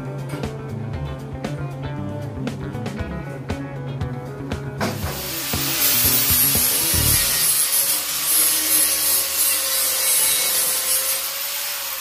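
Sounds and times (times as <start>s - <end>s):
angle grinder grinding metal: 5.1s - 12.0s.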